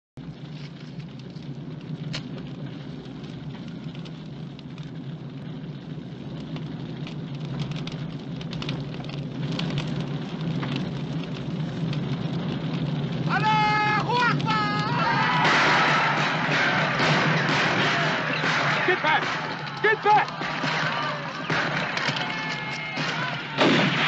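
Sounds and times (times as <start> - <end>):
fire crackling: 0.2 - 24.0.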